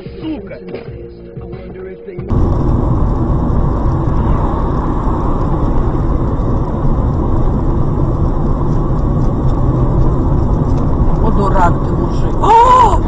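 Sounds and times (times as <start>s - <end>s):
car engine and tyre rumble: 2.3s - 13.0s.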